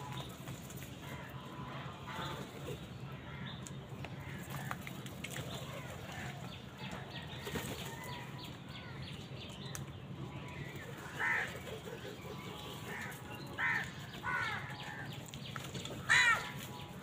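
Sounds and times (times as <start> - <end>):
crows moving on concrete: 0.0 - 17.0
crows calling: 10.6 - 15.2, 16.0 - 17.0.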